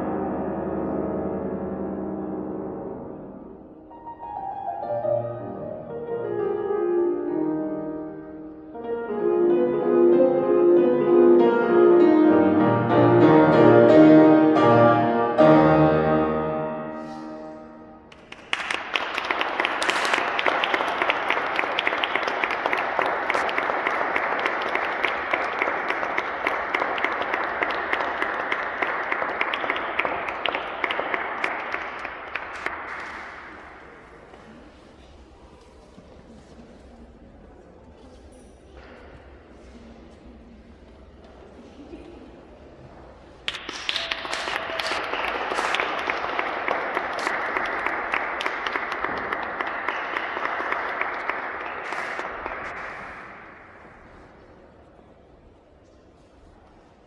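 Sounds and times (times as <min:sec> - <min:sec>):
solo grand piano: 0:00.0 - 0:18.1
audience applause: 0:18.1 - 0:34.5, 0:43.3 - 0:54.4.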